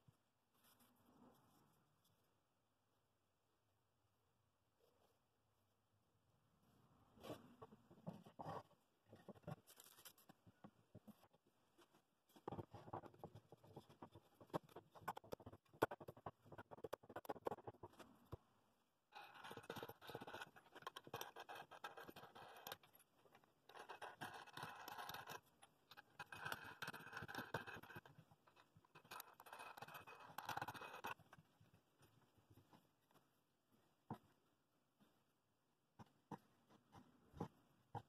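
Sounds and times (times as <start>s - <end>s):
nuts scraping on threaded rods: 19.2s - 23.1s, 23.7s - 31.2s.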